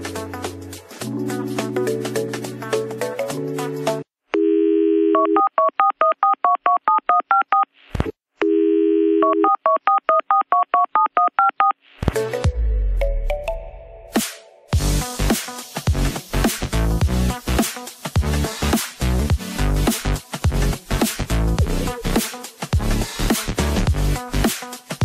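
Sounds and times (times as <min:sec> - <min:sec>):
background music: 0:00.0 - 0:04.1, 0:12.0 - 0:25.0
telephone dial tone: 0:04.4 - 0:07.6, 0:08.4 - 0:11.7
touch-tone keypad beeps: 0:05.2 - 0:07.6, 0:09.2 - 0:11.7.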